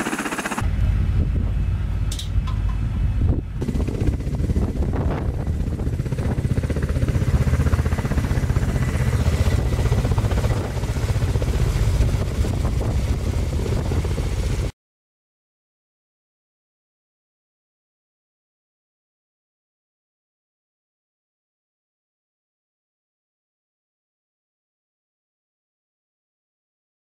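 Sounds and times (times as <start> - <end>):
helicopter engine hiss: 0.0 - 2.2, 3.6 - 14.7
helicopter rotors beating: 0.0 - 14.7.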